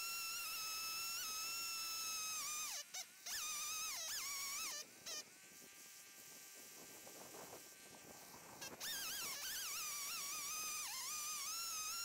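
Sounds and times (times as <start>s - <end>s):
soft hiss: 0.0s - 12.0s
faint held tone: 8.7s - 12.0s.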